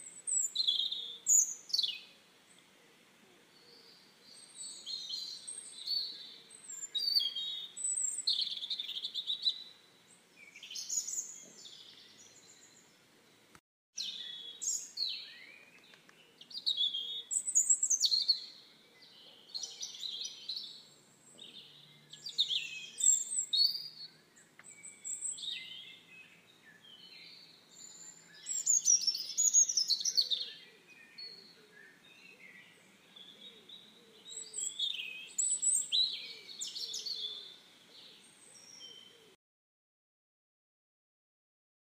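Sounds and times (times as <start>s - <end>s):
small birds chirping: 0.0s - 39.4s.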